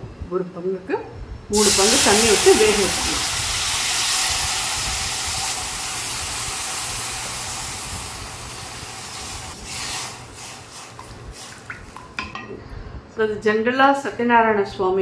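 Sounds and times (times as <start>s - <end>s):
water hissing in hot pan: 1.5s - 11.7s.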